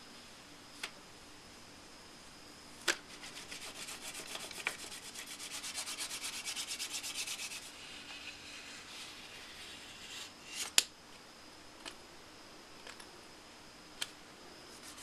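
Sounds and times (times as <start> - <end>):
stick rubbing on foil: 3.1 - 10.7, 14.8 - 15.0.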